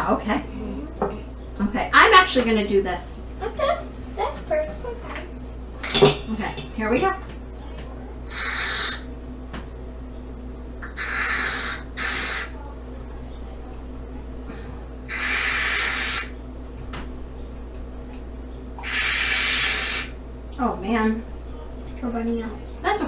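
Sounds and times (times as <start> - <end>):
aerosol can spraying foam: 11.0 - 12.5, 18.8 - 20.1.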